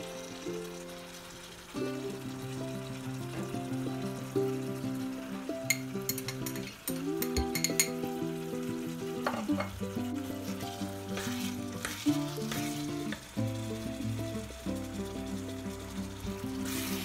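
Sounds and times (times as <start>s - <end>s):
meat frying in a pan: 0.0s - 17.0s
glass bowls clinking: 5.7s - 8.1s, 9.2s - 9.8s
wooden spoon stirring: 9.2s - 13.3s.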